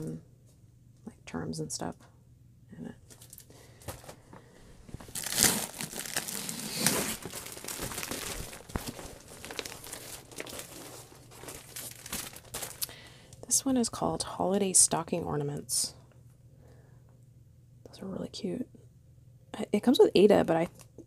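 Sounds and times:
packaging crinkling: 3.1s - 13.4s.

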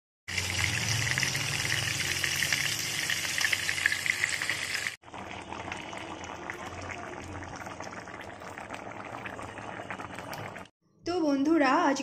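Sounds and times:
fish sizzling in hot oil: 0.3s - 9.1s.

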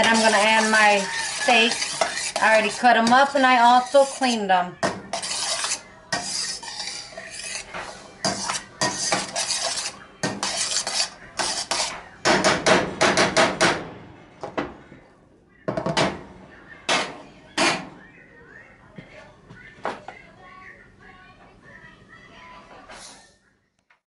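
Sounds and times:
utensil scraping a steel pan: 0.0s - 12.0s.

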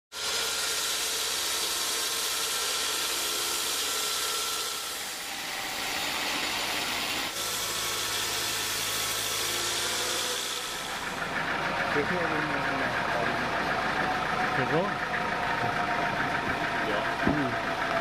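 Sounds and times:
saw blade hissing through wood: 0.1s - 11.2s
motor hum: 0.1s - 18.0s.

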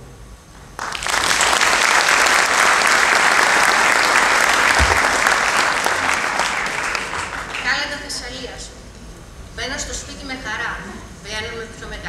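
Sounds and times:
audience applauding: 0.8s - 7.7s.

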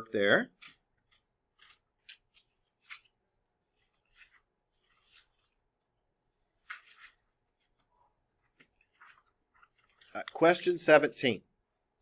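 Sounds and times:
paper rustling and scratching: 0.6s - 5.7s, 6.5s - 10.6s.

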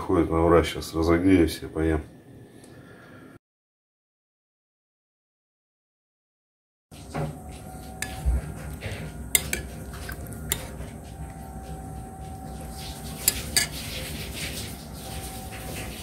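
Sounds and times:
low steady hum: 7.0s - 16.0s
spoon clinking against bowl: 9.3s - 11.4s, 13.2s - 14.0s.

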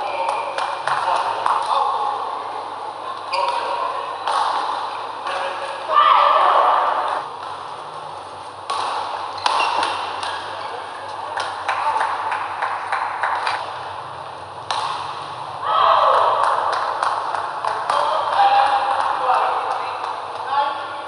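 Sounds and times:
shoe squeaks on court floor: 3.3s - 3.7s
racket striking shuttlecock: 3.4s - 5.7s, 8.6s - 10.6s, 14.6s - 15.3s, 16.3s - 20.4s.

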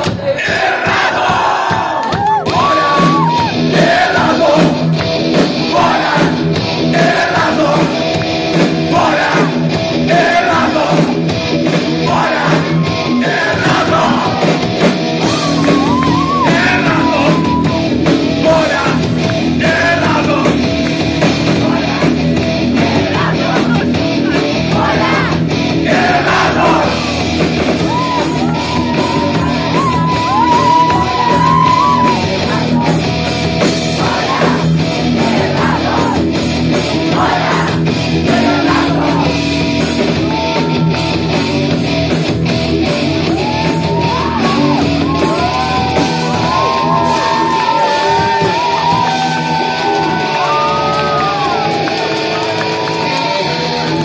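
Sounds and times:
heavy metal band: 0.0s - 54.0s.

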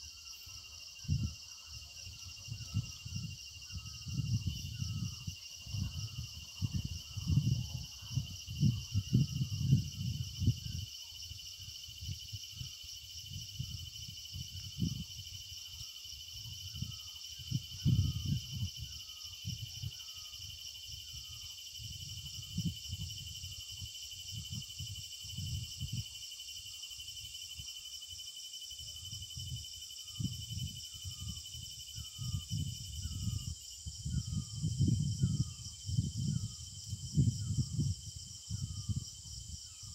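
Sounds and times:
insects chorus: 0.0s - 39.9s
short insect chirp: 0.0s - 39.9s
wind buffeting microphone: 0.9s - 10.9s, 12.0s - 15.8s, 16.4s - 20.0s, 21.1s - 26.0s, 29.0s - 39.9s.

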